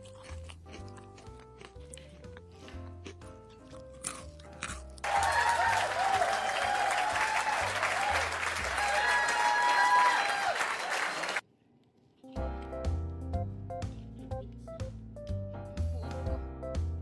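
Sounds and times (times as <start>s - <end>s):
background music: 0.0s - 10.0s, 12.3s - 17.0s
crowd applause and cheering: 5.0s - 11.4s.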